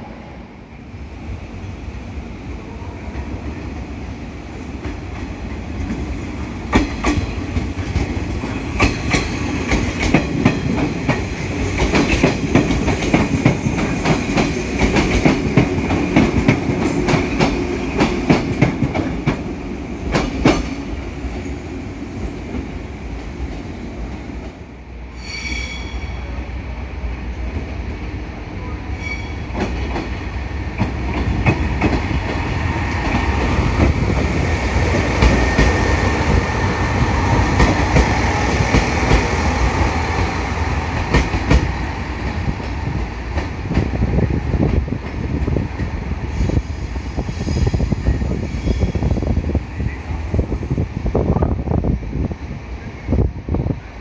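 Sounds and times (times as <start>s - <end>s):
low train rumble: 0.0s - 54.0s
train wheels clicking over rail joints: 4.8s - 20.9s, 29.5s - 36.5s, 40.9s - 46.8s
high wheel squeal: 25.1s - 26.4s, 28.8s - 29.6s.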